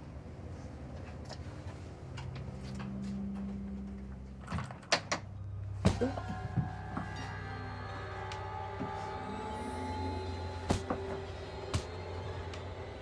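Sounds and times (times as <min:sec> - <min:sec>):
quiet background music: 0:00.0 - 0:13.0
low steady drone: 0:01.8 - 0:13.0.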